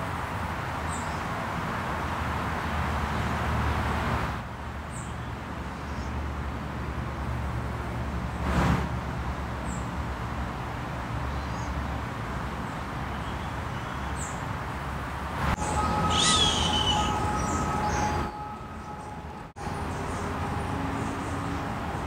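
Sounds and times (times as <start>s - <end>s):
short high-pitched sound: 15.6s - 19.5s
steady whistling tones: 15.6s - 19.5s.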